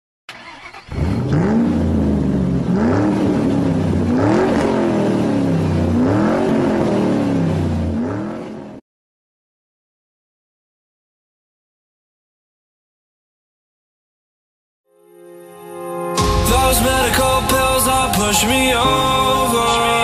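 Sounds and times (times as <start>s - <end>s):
car engine revving: 0.3s - 8.8s.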